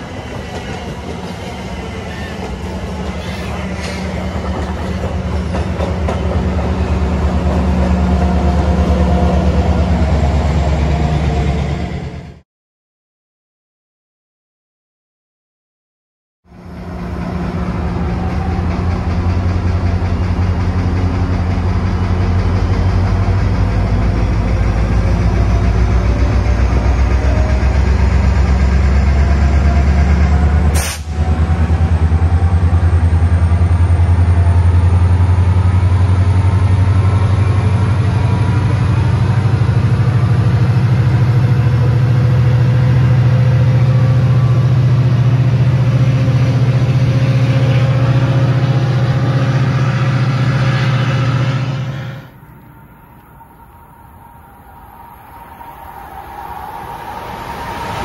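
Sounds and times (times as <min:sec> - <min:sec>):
train locomotive engine drone: 0:00.0 - 0:12.4, 0:16.5 - 0:58.0
high whine: 0:43.0 - 0:58.0.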